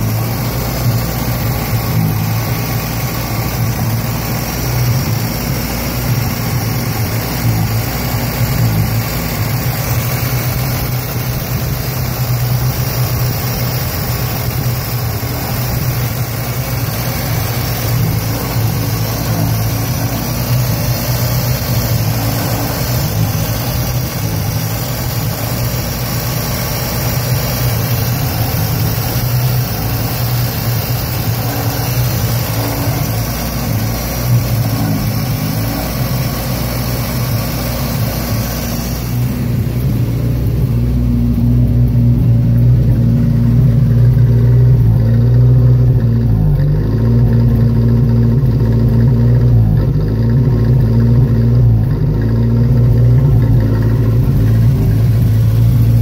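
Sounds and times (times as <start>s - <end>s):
car engine idling roughly: 0.0s - 56.0s.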